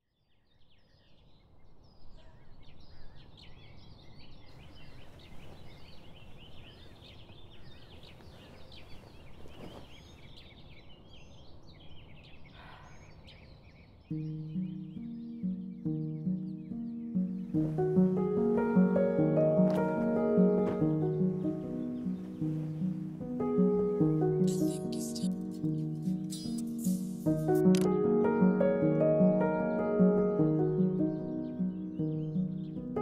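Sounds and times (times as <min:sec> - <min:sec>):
small birds chirping: 0:00.0 - 0:33.0
music with low notes: 0:14.1 - 0:33.0.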